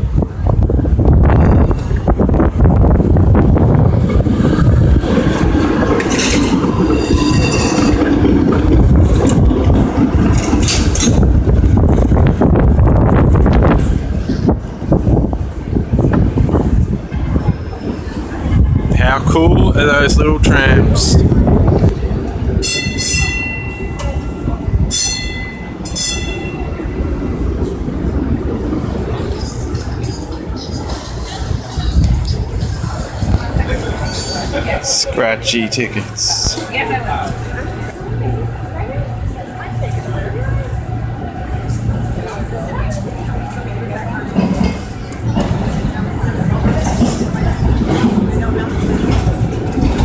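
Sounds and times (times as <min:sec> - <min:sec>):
streetcar wheels rumbling on rails: 0:00.0 - 0:50.0
steel wheels squealing: 0:06.1 - 0:08.1, 0:33.8 - 0:34.8.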